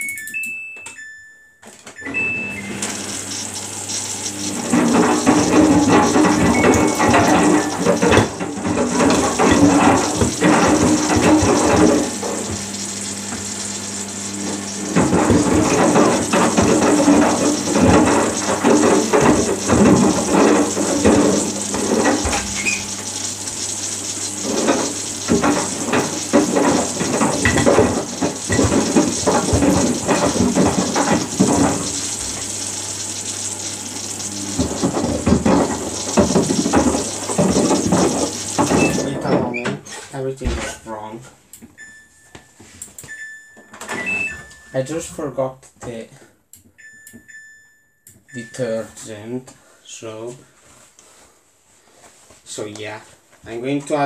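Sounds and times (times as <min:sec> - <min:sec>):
water sloshing in washing machine: 0:02.0 - 0:39.5.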